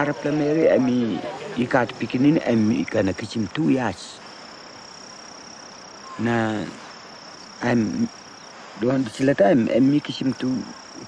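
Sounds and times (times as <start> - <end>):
man speaking: 0.0 - 4.2, 6.2 - 6.8, 7.6 - 8.1, 8.8 - 10.8
high-pitched insect trill: 0.0 - 11.0.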